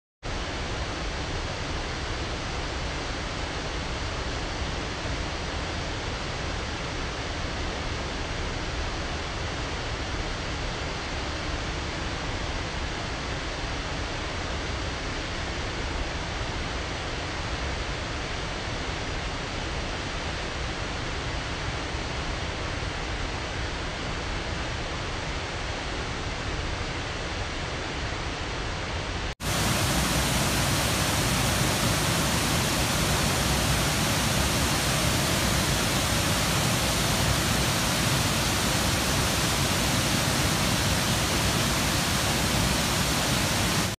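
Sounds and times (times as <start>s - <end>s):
waterfall rushing: 29.4s - 44.0s.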